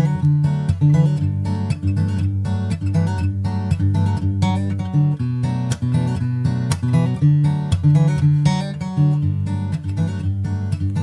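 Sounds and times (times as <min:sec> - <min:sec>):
country folk acoustic guitar music: 0:00.0 - 0:11.0.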